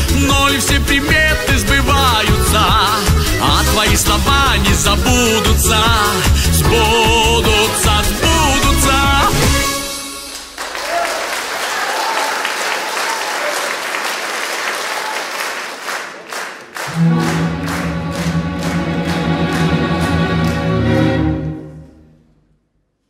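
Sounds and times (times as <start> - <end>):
orchestral backing track: 0.0 - 10.6, 16.9 - 22.4
rhythmic clapping: 0.0 - 21.2
audience applauding: 10.1 - 21.2.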